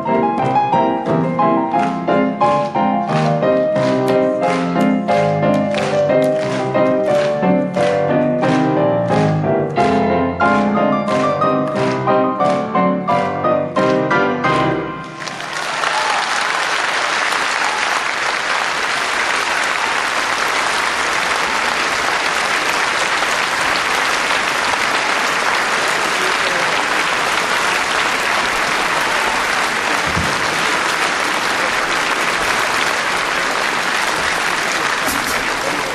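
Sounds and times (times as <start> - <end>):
audience applauding: 0.0 - 35.9.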